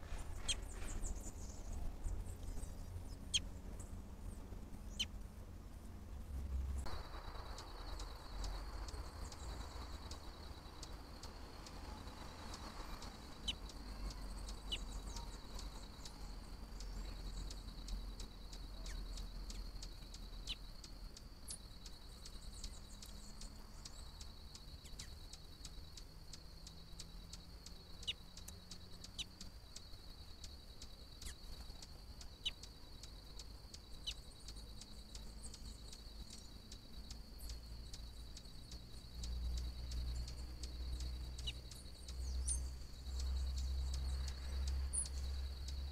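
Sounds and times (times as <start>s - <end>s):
low rumble: 0.0s - 15.8s
high-pitched insect trill: 6.9s - 45.9s.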